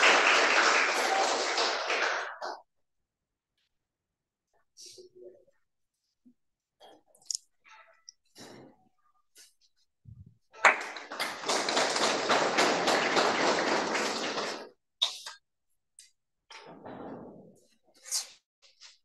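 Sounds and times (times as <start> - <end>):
hand clapping: 0.0 - 2.6, 10.6 - 14.7.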